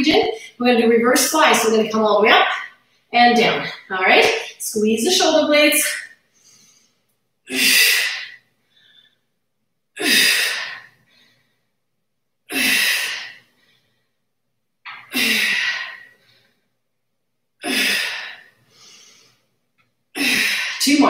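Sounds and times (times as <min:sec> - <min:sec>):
woman exhaling forcefully: 0:14.9 - 0:16.1, 0:20.2 - 0:20.9.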